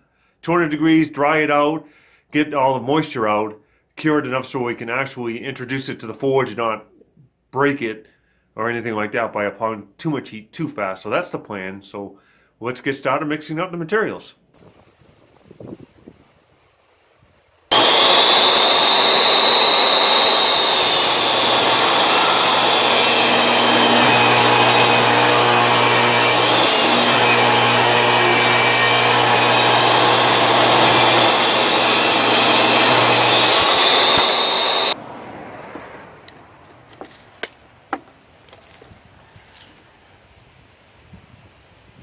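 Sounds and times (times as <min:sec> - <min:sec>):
table saw cutting wood: 0:17.7 - 0:35.0.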